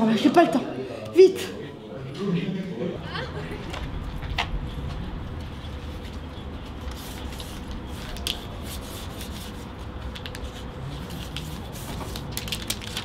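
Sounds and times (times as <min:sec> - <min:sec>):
paper rustling and rubbing: 0:05.4 - 0:13.0.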